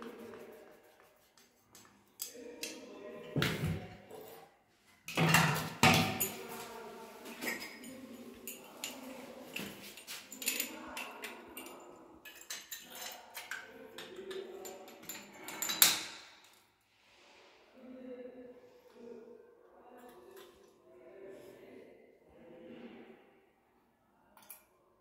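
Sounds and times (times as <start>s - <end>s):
metal parts clinking and knocking: 10.0s - 16.6s.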